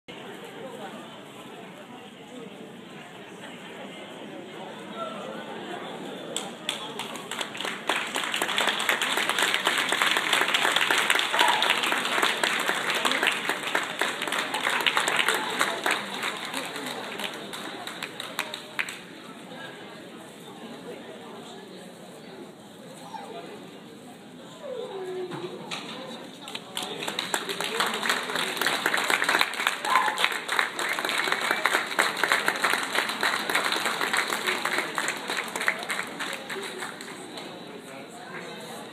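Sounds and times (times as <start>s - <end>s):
spectators applauding: 6.7s - 19.0s, 26.5s - 37.3s.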